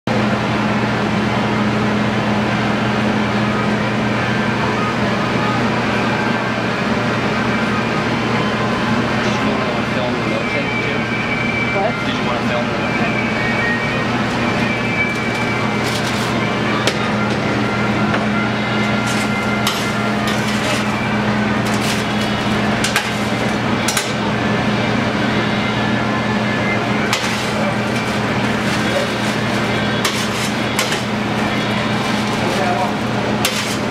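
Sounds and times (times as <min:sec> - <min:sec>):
low electrical hum: 0:00.1 - 0:33.9
metal scoop scraping steel: 0:19.0 - 0:23.5, 0:27.1 - 0:33.9.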